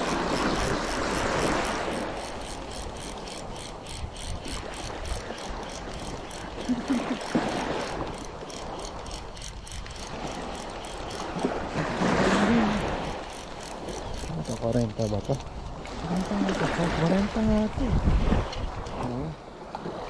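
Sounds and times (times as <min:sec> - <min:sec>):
fishing reel ticking: 0:00.0 - 0:15.5.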